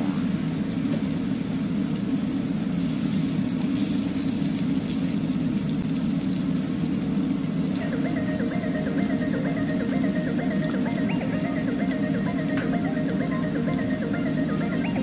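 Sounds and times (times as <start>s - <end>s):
chicken sizzling in a pan: 0.0s - 7.9s.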